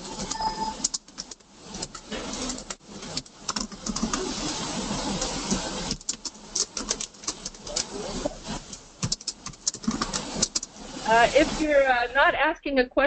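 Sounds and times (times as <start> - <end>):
steady hiss: 0.0 - 13.0
sharp clicks and knocks: 8.6 - 10.7.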